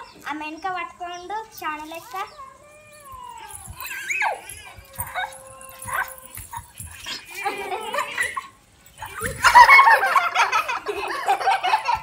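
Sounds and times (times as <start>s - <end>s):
excited chatter: 0.0s - 12.0s
girls shrieking and laughing: 3.1s - 12.0s.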